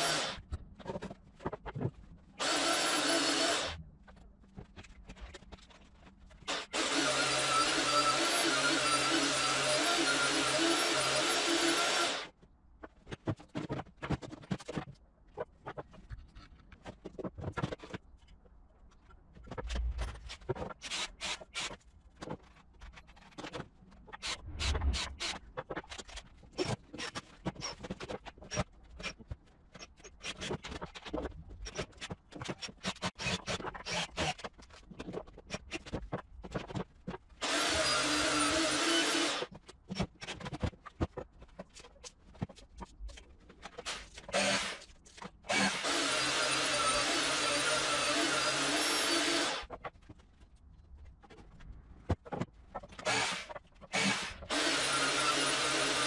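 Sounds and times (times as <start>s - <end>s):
power tool running: 0.0s - 0.4s, 2.4s - 3.8s, 6.5s - 12.3s, 37.4s - 39.5s, 43.9s - 44.8s, 45.5s - 49.7s, 53.0s - 56.0s.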